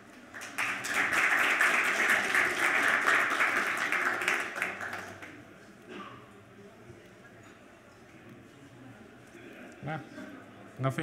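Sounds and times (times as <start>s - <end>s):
audience applauding: 0.1s - 5.4s.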